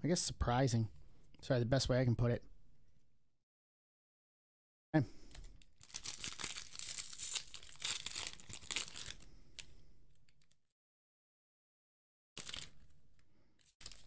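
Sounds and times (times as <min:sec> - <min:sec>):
wrapper being torn and crinkled: 0:05.5 - 0:10.6, 0:12.4 - 0:12.9, 0:13.6 - 0:14.0.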